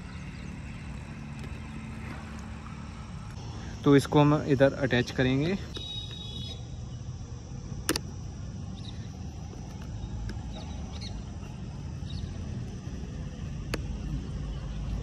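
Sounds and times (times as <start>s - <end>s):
low outdoor rumble: 0.0s - 15.0s
sharp plastic clicks: 7.8s - 8.2s.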